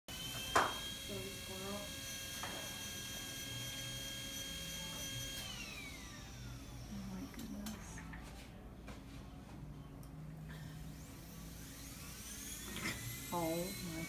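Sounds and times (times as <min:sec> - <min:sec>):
small motor whine winding down: 0:00.1 - 0:07.8, 0:10.9 - 0:14.0.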